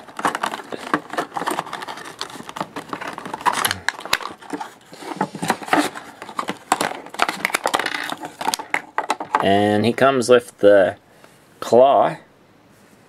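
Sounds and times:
plastic packaging crinkling: 0.0s - 9.7s.

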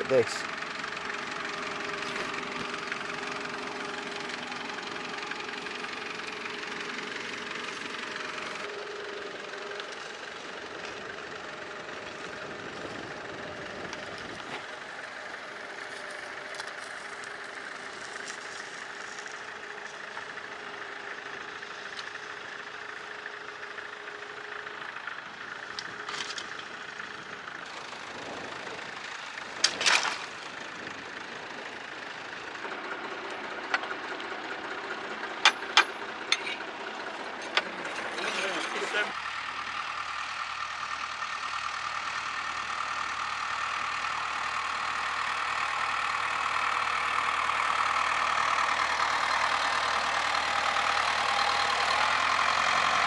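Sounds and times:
tractor diesel engine under load: 0.0s - 53.0s
loud clatter: 29.6s - 30.4s.

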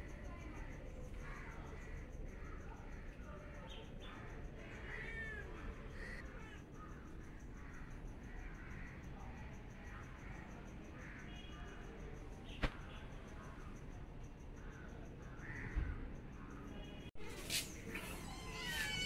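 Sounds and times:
cat meowing: 17.9s - 19.0s.

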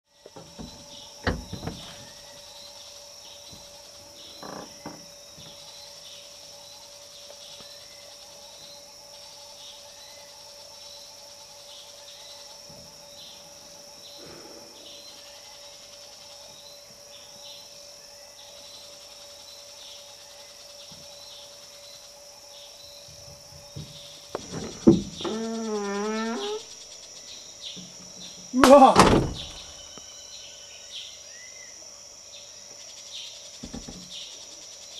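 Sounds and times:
high drone of insects: 0.1s - 34.9s
short insect chirp: 0.1s - 34.9s.

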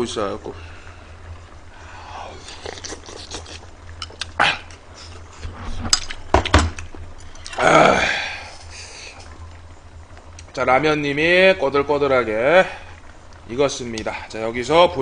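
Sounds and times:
man chewing food: 1.4s - 7.6s
harsh throat noise: 1.9s - 5.2s
mouth clicks: 2.4s - 4.8s.

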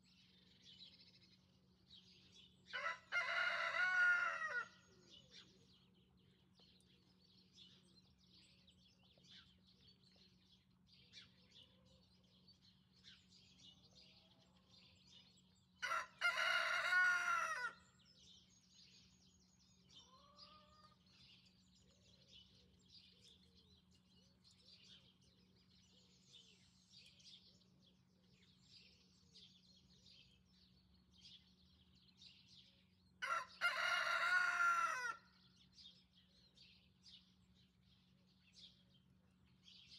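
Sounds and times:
small birds chirping: 0.0s - 39.9s
rooster crowing: 2.7s - 4.8s, 15.8s - 17.8s, 33.2s - 35.3s.

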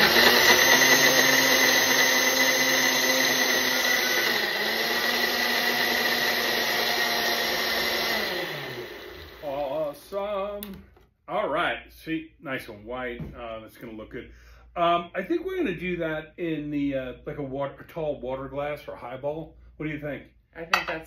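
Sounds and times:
countertop blender running: 0.0s - 10.2s.

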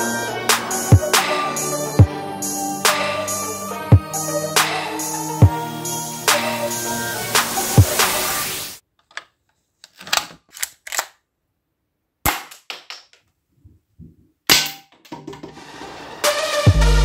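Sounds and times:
music: 0.0s - 8.8s, 15.2s - 17.0s.

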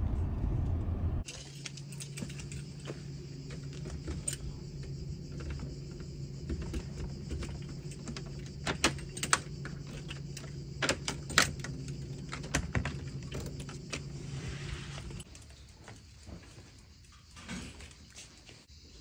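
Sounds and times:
steady low hum: 0.0s - 15.4s
light jingling: 1.3s - 14.3s.

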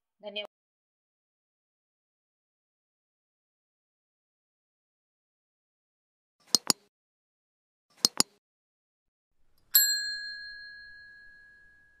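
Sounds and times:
notification bell ding: 9.8s - 12.0s.

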